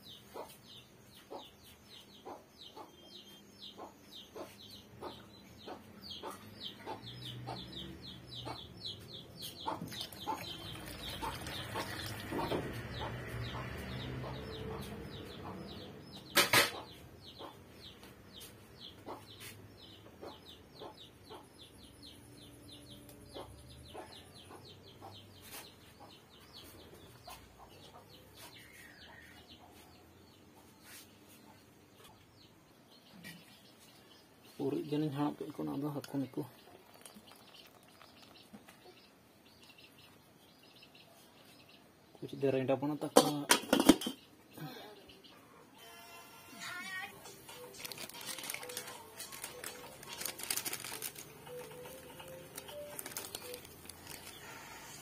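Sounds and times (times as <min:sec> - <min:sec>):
gravy simmering with small pops: 0:36.0 - 0:38.8.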